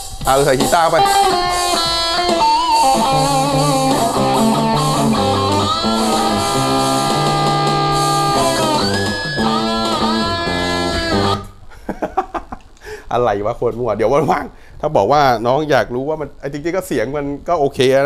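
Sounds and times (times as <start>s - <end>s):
bass guitar: 0.0s - 11.6s
electric guitar with bent notes: 0.0s - 11.7s.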